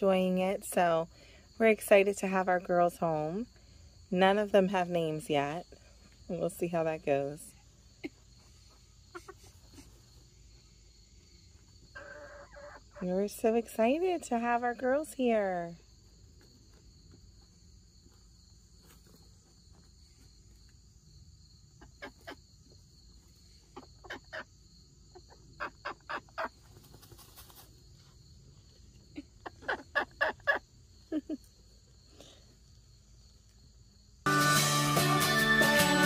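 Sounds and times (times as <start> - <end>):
hens clucking: 8.0 - 10.3, 11.9 - 13.2, 23.6 - 24.5, 29.1 - 30.8.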